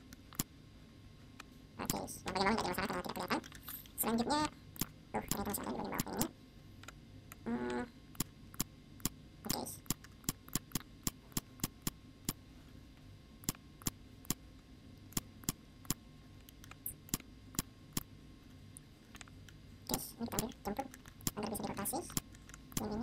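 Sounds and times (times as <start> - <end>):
faint steady low hum: 0.0 - 23.0
computer mouse clicking: 3.3 - 4.0, 8.2 - 12.4, 13.4 - 14.4, 15.1 - 18.1, 18.8 - 19.6, 20.4 - 23.0.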